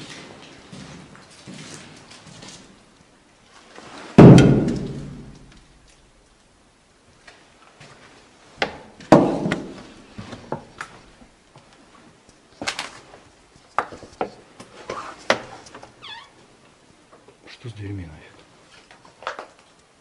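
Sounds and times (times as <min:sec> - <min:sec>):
doors knocking and banging: 0:04.2 - 0:05.5, 0:09.1 - 0:09.8.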